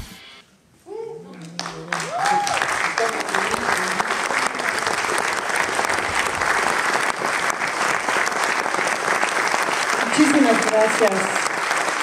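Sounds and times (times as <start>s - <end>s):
audience applauding: 1.4s - 12.0s.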